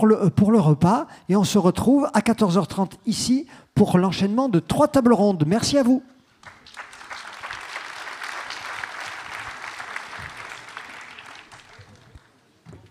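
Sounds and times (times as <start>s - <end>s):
audience applauding: 6.4s - 12.9s.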